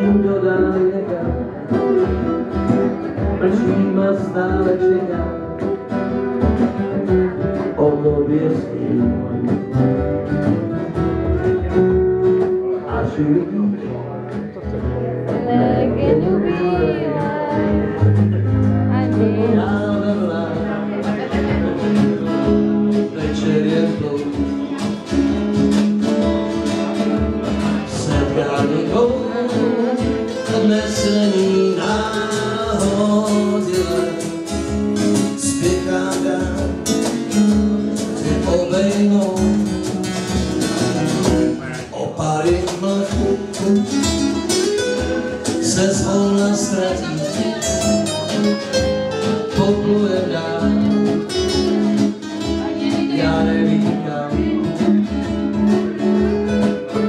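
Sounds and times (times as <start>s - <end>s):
acoustic guitars strummed: 0.0s - 57.0s
person singing: 15.2s - 24.9s, 27.6s - 40.2s, 41.6s - 57.0s.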